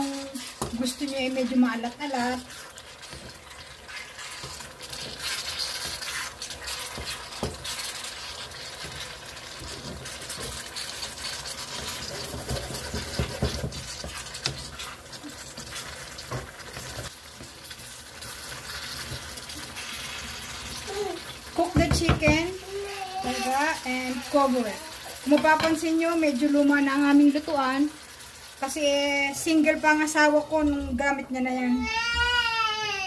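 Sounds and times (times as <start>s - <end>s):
spatula scraping frying pan: 0.0s - 26.6s
food sizzling: 0.0s - 33.0s
spatula knocking on pan: 12.3s - 14.6s, 21.6s - 22.5s.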